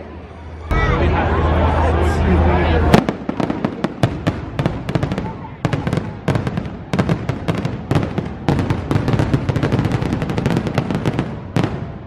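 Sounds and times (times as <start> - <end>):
fireworks bangs and crackles: 2.8 - 12.0.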